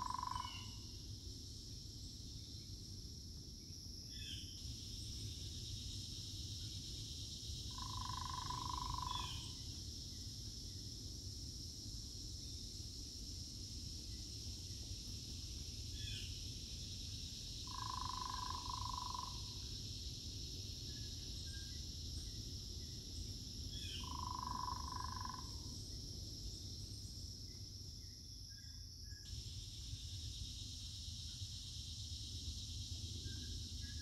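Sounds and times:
high-pitched insect chorus: 0.0 - 34.0
long mid-pitched calls: 17.7 - 19.5.

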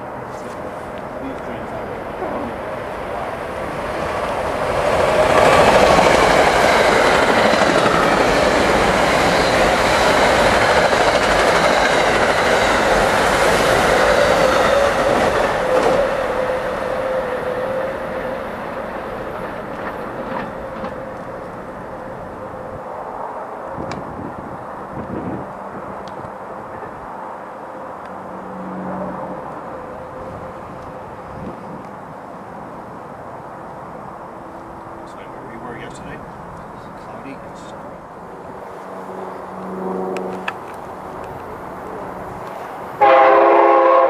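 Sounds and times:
steady train tone: 0.0 - 44.0
train wheels on rails: 0.1 - 22.6, 34.9 - 44.0.

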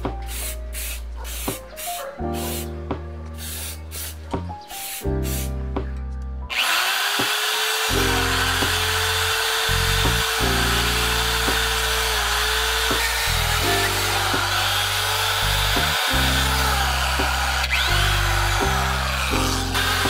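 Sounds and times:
lo-fi music: 0.0 - 20.0
electric drill wire brush scrubbing: 6.5 - 20.0.

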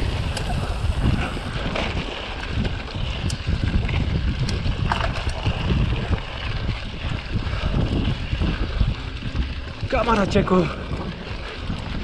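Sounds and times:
bike clicks and rattles: 0.0 - 12.0
tyres rolling on gravel: 0.0 - 12.0
wind buffeting microphone: 0.0 - 12.0.

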